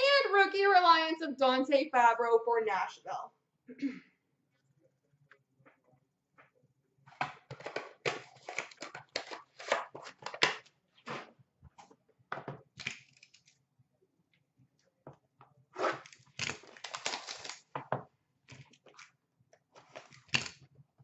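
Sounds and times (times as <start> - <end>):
packaging being torn open: 7.6 - 10.6, 16.0 - 17.7.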